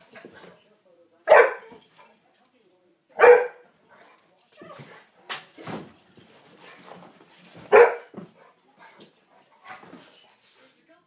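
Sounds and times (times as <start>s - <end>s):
dog barking: 1.3s - 1.7s, 3.2s - 3.6s, 7.7s - 8.2s.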